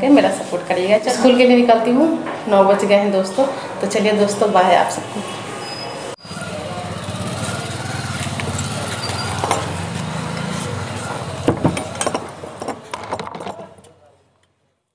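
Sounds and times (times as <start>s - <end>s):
small engine running: 6.2s - 12.1s
sharp handling knocks: 11.4s - 13.6s.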